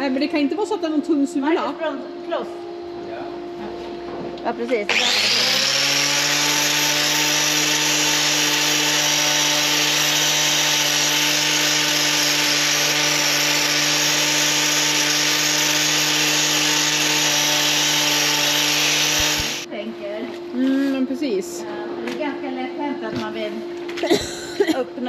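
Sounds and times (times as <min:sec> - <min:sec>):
angle grinder grinding: 0:04.7 - 0:19.7.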